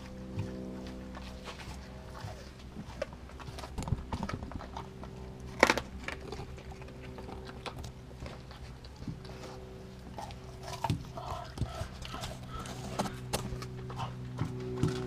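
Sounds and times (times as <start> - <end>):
dog crunching frozen chicken: 0.0 - 15.0.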